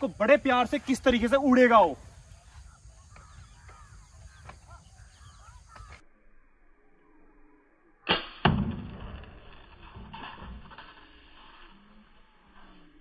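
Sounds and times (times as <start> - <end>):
birds chirping faintly: 0.0 - 8.0.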